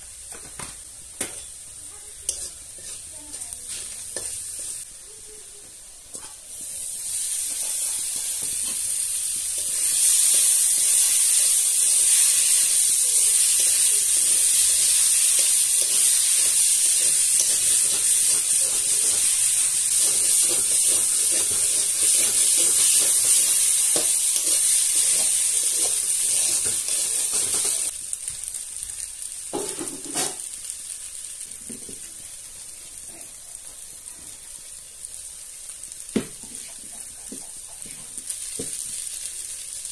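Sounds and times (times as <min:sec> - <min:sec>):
noodles sizzling in hot oil: 0:00.0 - 0:39.9
spoon scraping a metal pan: 0:02.2 - 0:04.9.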